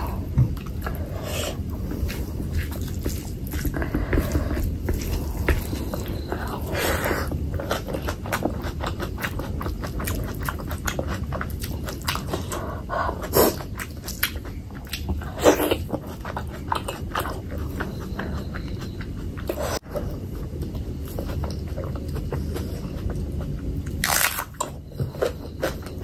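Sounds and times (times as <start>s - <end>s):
close chewing with wet clicks: 7.3s - 19.6s.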